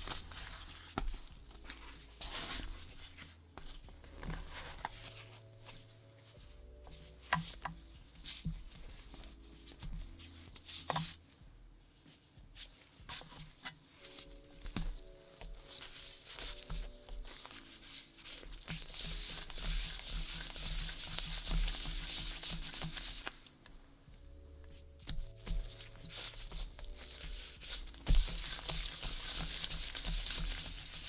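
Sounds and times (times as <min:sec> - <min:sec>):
dough rubbing on wooden board: 0:16.0 - 0:23.3, 0:25.2 - 0:31.0.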